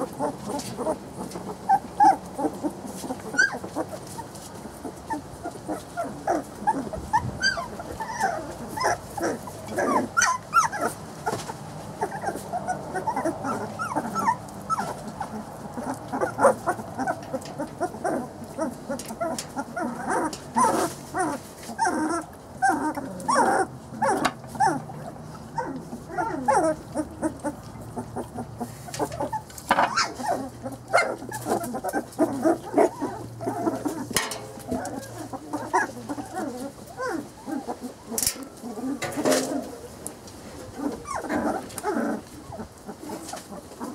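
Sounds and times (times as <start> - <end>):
puppies whining and squeaking: 0.0 - 43.9
sharp clicks or knocks: 34.2 - 34.9.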